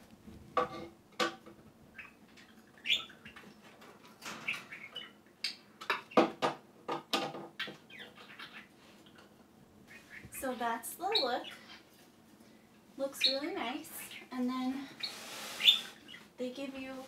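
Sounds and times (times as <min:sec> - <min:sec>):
budgerigars chirping: 0:01.9 - 0:03.5, 0:04.4 - 0:06.3, 0:07.6 - 0:08.8, 0:09.9 - 0:11.9, 0:15.0 - 0:16.3.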